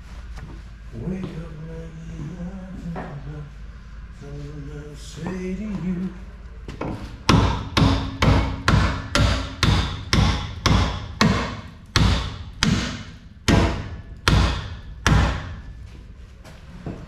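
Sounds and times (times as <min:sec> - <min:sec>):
hammer striking steel: 0:07.2 - 0:15.7.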